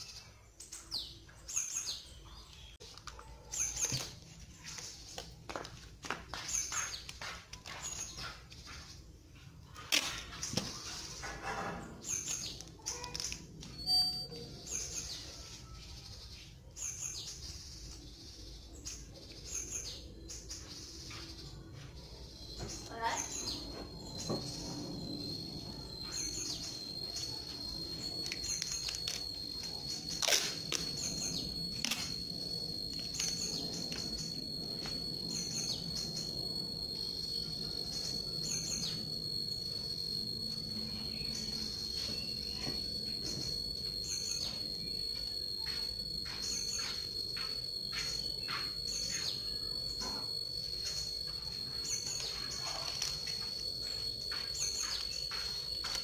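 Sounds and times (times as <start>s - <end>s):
high-pitched insect drone: 3.4s - 9.0s, 9.7s - 56.0s
birds chirping: 13.9s - 56.0s.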